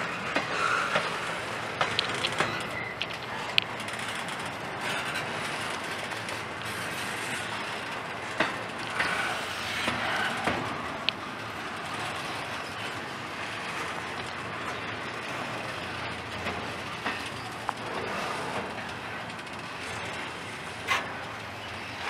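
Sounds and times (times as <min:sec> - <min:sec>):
train wheels on rails: 0:00.0 - 0:22.0
high metal squeal: 0:02.3 - 0:05.6.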